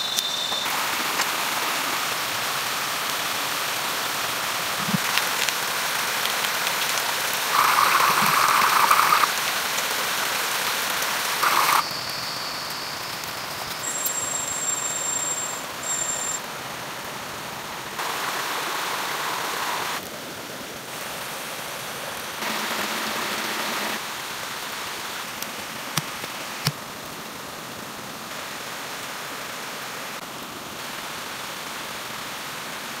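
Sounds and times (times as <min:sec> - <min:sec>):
jungle ambience hiss: 0:00.0 - 0:33.0
sharp clicks: 0:06.2 - 0:09.9, 0:11.4 - 0:11.8.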